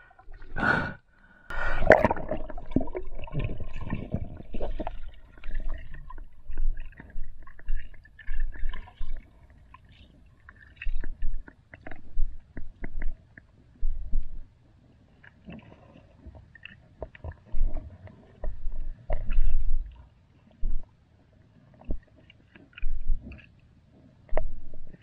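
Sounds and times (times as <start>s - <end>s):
bubbling: 0.0s - 9.3s
muffled underwater rumble: 1.5s - 21.0s, 21.7s - 25.0s
water sloshing: 1.6s - 14.6s, 15.2s - 20.9s, 21.7s - 23.7s
underwater clicks and knocks: 2.0s - 9.2s, 10.8s - 14.5s, 16.3s - 20.0s, 21.8s - 23.6s, 24.3s - 25.0s.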